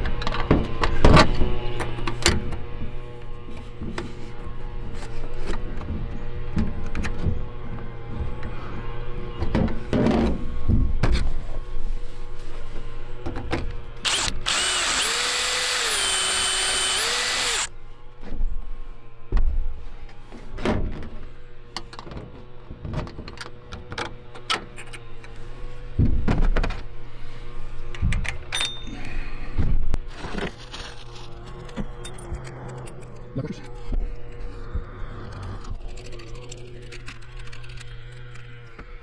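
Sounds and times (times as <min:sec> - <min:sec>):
cordless drill whining: 0:14.0 - 0:17.7.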